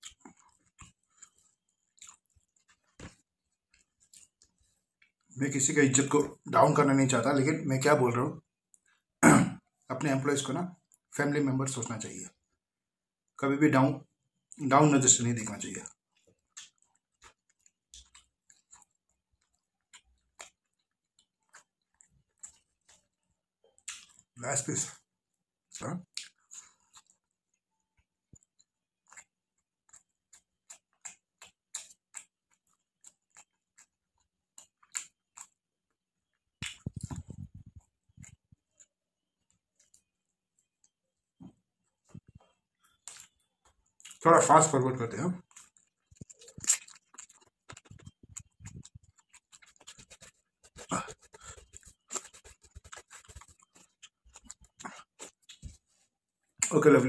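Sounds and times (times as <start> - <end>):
person chewing with lip smacks: 0.0 - 5.3, 15.8 - 24.4, 25.7 - 27.6, 28.3 - 35.6, 36.3 - 44.2, 45.4 - 56.8.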